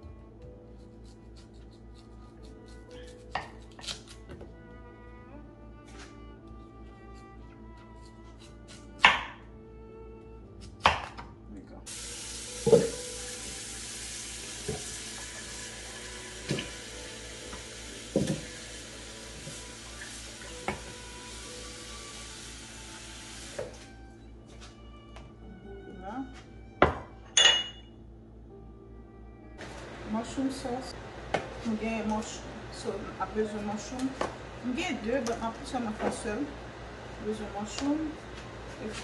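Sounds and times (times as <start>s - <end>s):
soft background music: 0.0s - 36.5s, 37.2s - 39.0s
knife chopping on wooden board: 8.7s - 9.4s, 10.8s - 11.2s
tap running into pot: 12.6s - 13.0s, 16.4s - 16.8s, 17.5s - 18.6s.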